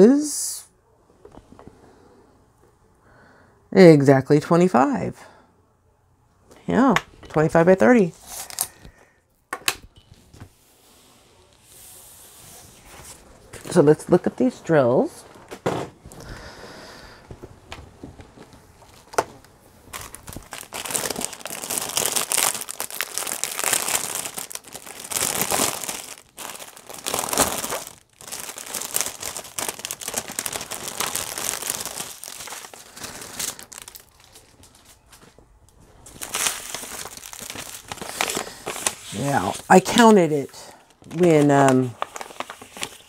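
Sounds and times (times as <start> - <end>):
plastic packaging crinkling: 17.3 - 43.0.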